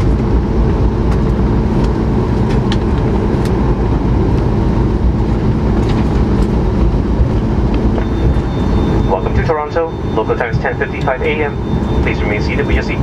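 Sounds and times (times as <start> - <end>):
jet engines idling: 0.0 - 13.0.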